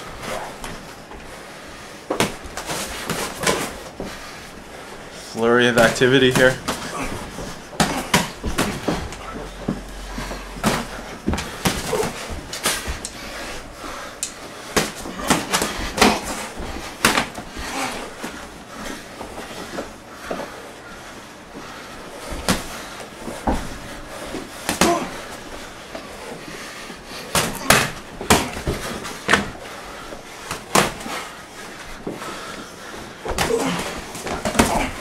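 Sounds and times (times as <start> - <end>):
boxing gloves thudding: 5.8 - 13.6, 14.7 - 18.3, 27.3 - 29.6, 30.4 - 31.2, 33.3 - 35.0.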